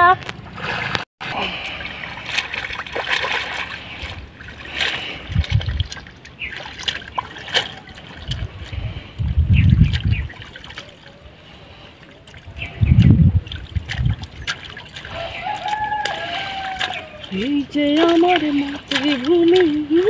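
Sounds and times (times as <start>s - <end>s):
low rumbles: 0.0s - 10.6s
pond water splashing: 0.0s - 20.0s.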